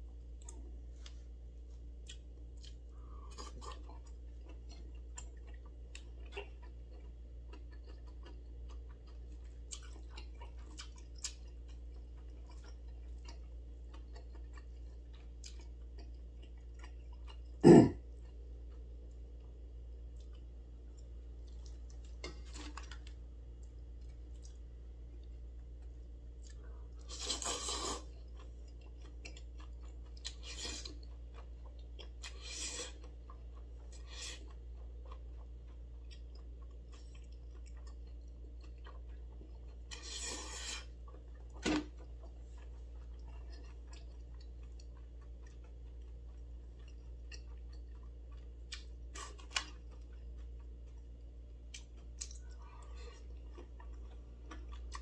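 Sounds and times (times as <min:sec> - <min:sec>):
person chewing: 0:00.3 - 0:55.0
noodle slurps: 0:27.1 - 0:28.1.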